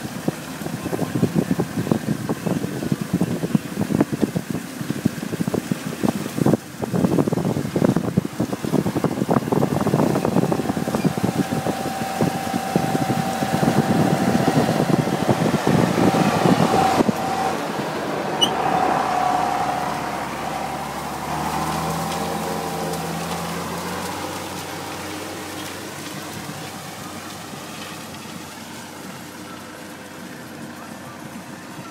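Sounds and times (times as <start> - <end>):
wind buffeting microphone: 0.0 - 29.4
tractor engine running: 0.0 - 31.9
steady machine whine: 8.6 - 31.7.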